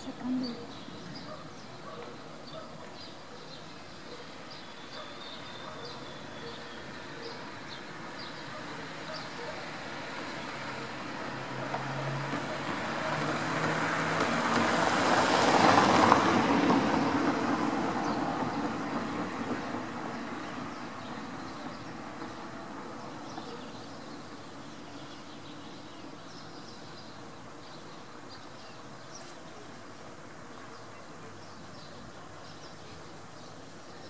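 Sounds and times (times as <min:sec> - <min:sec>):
passing vehicle rushing: 0:09.9 - 0:20.0.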